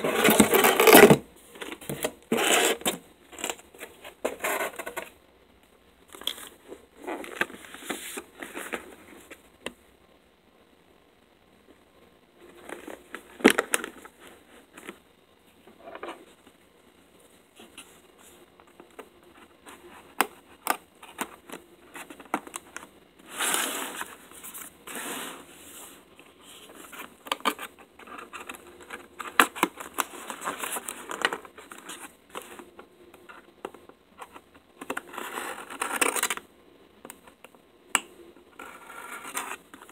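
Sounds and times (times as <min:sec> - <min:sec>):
cardboard scraping and tearing: 0:00.0 - 0:01.2, 0:01.9 - 0:03.6.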